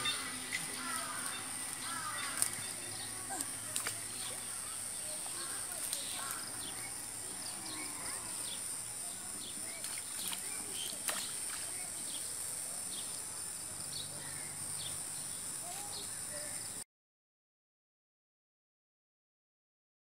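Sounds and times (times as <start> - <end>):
insect drone: 0.0 - 16.8.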